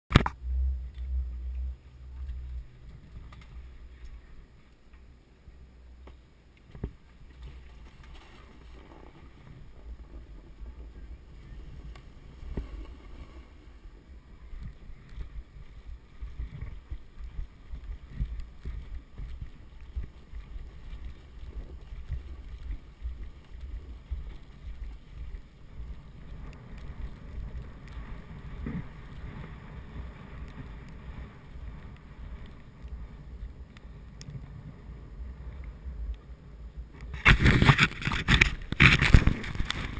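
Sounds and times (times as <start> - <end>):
wind rumble on microphone: 0.1 - 39.9
snowboard scraping through snow: 11.3 - 35.8.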